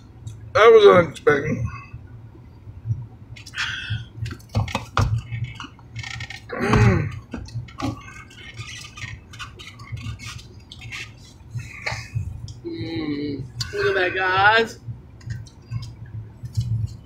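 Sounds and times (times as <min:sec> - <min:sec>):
food containers and utensils handled: 0:04.3 - 0:12.1.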